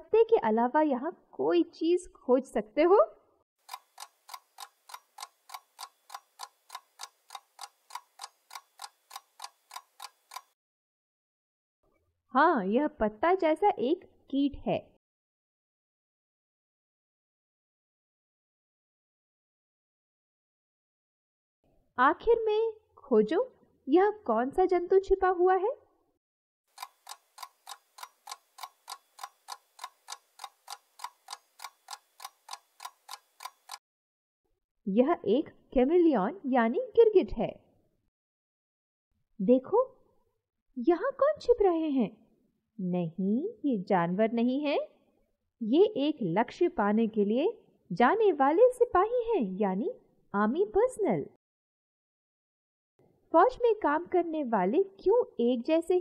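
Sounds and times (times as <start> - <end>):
clock ticking: 3.6 - 10.6, 26.8 - 33.8.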